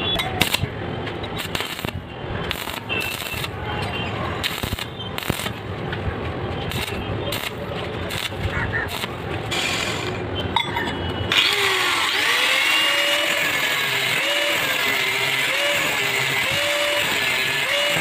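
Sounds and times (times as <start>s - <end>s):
welding arc crackling: 0.2s - 10.3s, 11.4s - 18.0s
angle grinder cutting steel rod: 1.4s - 3.5s, 4.4s - 5.6s, 6.7s - 10.2s, 11.3s - 18.0s.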